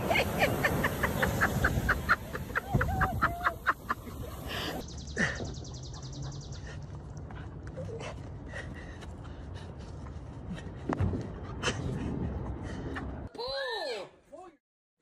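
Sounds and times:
breaking surf: 0.0s - 3.9s
person laughing hard: 0.0s - 5.5s.

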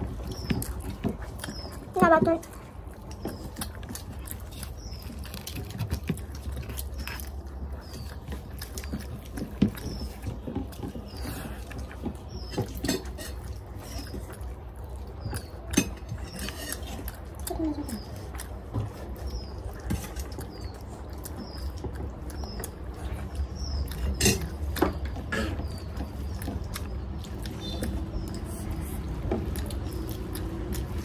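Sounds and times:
person chewing and lip-smacking: 0.0s - 31.0s.

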